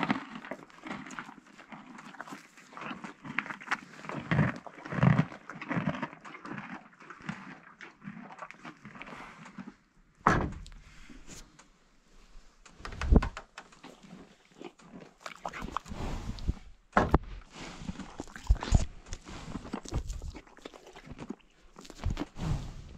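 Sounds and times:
horse breathing: 0:08.9 - 0:09.8, 0:10.6 - 0:22.9.

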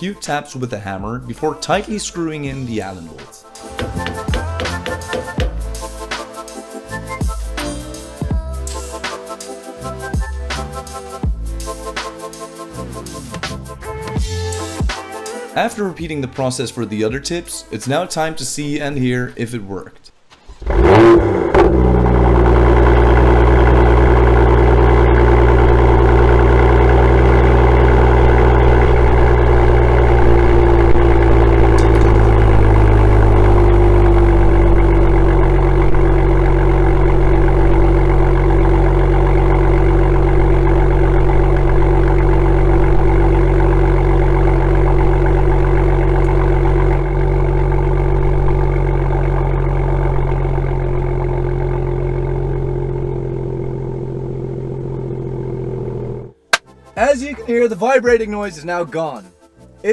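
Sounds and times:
car engine idling: 0:20.7 - 0:56.6.

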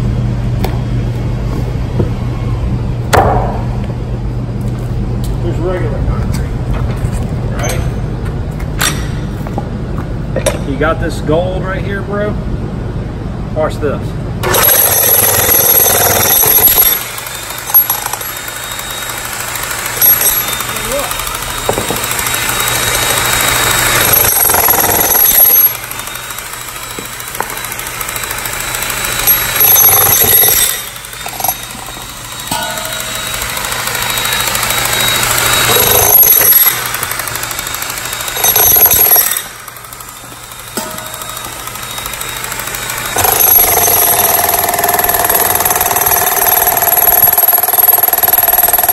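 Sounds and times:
jackhammer chiselling concrete: 0:14.4 - 0:48.9
low hum: 0:16.4 - 0:44.5.

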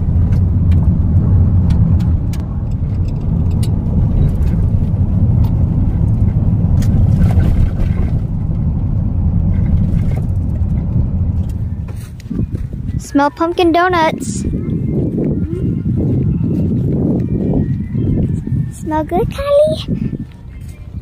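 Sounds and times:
car engine: 0:00.0 - 0:17.8
tyre and road noise: 0:00.0 - 0:21.0.

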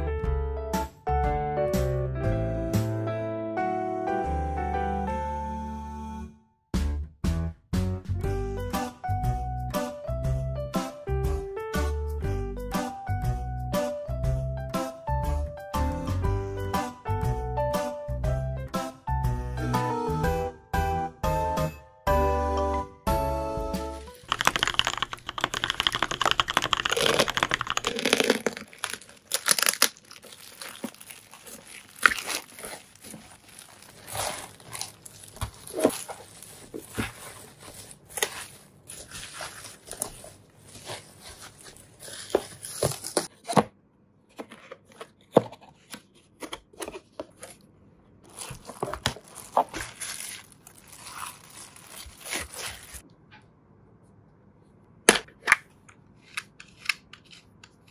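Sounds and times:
plastic packaging crinkling: 0:24.0 - 0:43.3, 0:48.2 - 0:53.0
tearing rustle: 0:24.1 - 0:43.3, 0:48.2 - 0:53.0.

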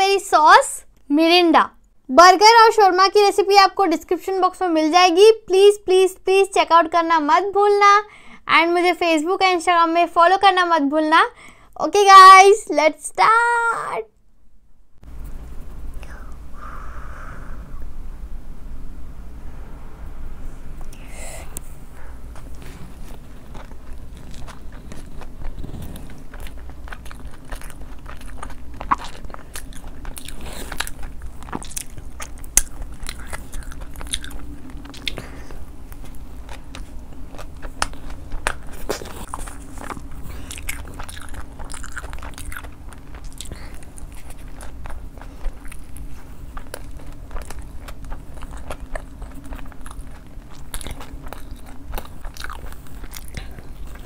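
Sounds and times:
steady low hum: 0:00.0 - 0:54.0
person chewing crunchy food: 0:20.9 - 0:54.0.

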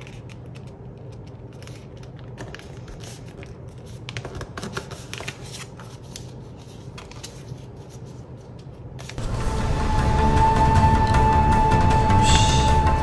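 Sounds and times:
paper rustling and crinkling: 0:00.0 - 0:09.2.

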